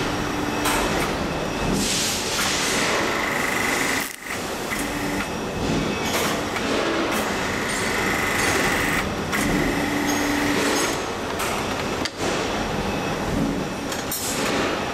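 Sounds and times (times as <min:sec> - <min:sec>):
machine press whirring: 0:00.6 - 0:11.6.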